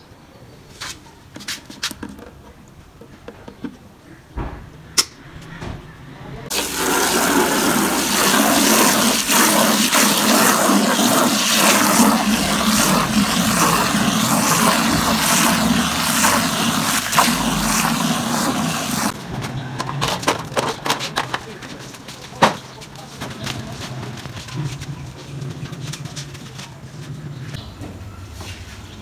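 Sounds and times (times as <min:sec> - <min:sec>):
hose water pouring into bucket: 0:06.5 - 0:19.2.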